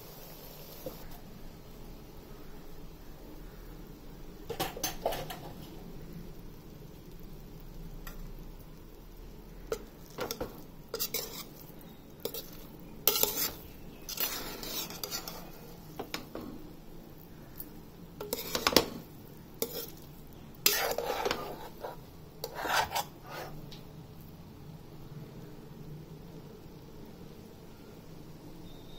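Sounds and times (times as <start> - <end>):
spatula scraping and knocking pot: 9.7 - 16.6, 18.2 - 23.6.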